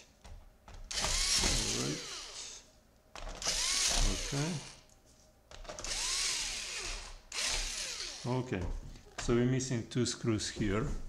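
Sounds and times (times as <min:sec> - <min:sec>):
electric screwdriver whine: 0:00.9 - 0:02.6, 0:03.4 - 0:04.8, 0:05.8 - 0:08.3.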